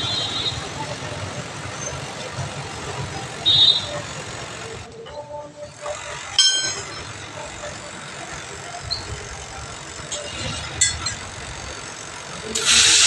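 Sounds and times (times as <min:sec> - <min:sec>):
metal tools clinking on wheel rim: 0:06.3 - 0:07.8, 0:10.0 - 0:11.8.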